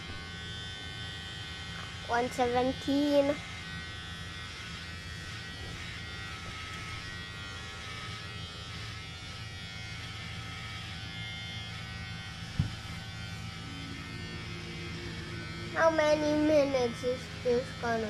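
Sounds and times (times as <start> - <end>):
electric hair clippers buzzing: 0.0 - 18.0
brief thump: 12.6 - 12.8.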